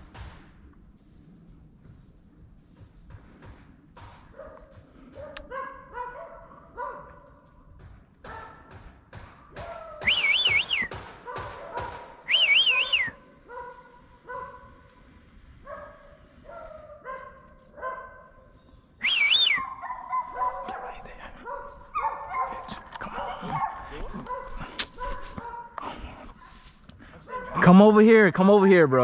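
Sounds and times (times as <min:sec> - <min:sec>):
dogs barking: 0:04.0 - 0:07.6, 0:08.2 - 0:18.6, 0:19.4 - 0:27.8
loud warbling whistle: 0:10.0 - 0:11.0, 0:12.3 - 0:13.2, 0:19.0 - 0:19.7.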